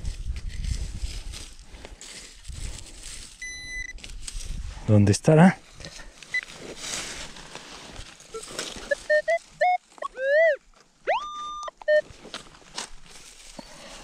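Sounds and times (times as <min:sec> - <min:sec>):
metal detector beeps and tones: 0:03.4 - 0:04.0, 0:06.3 - 0:06.5, 0:08.3 - 0:12.2.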